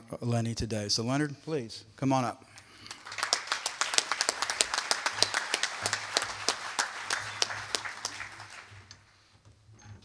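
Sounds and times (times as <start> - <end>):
audience applauding: 2.7 - 9.1.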